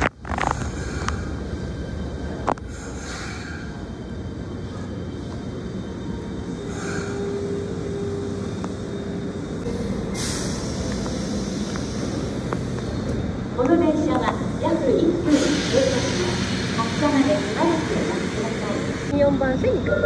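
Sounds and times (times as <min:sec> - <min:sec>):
train rumble: 0:00.0 - 0:20.0
train whine: 0:00.0 - 0:20.0
air hiss: 0:09.7 - 0:13.1, 0:14.3 - 0:19.1.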